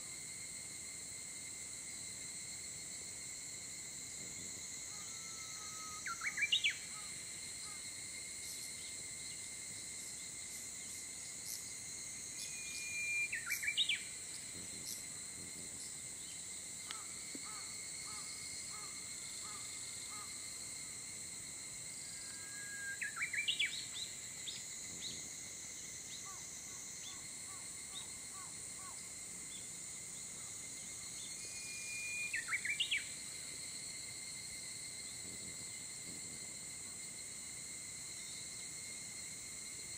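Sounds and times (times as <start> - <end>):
insects droning: 0.0 - 39.9
songbird singing: 5.0 - 7.1, 12.4 - 15.1, 22.1 - 25.2, 31.2 - 33.2.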